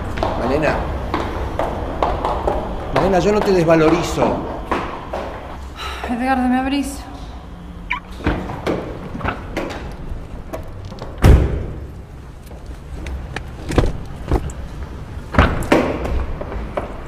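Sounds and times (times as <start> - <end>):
thumps and knocks inside car: 13.3 - 14.6.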